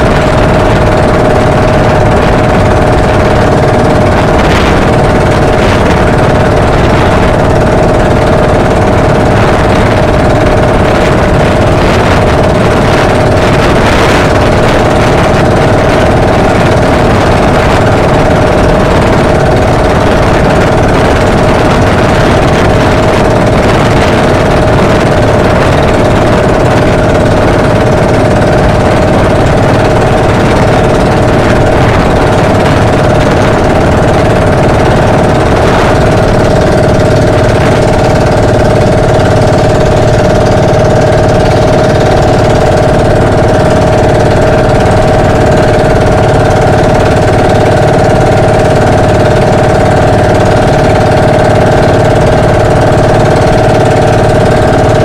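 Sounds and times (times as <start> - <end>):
boat engine running: 0.0 - 55.0.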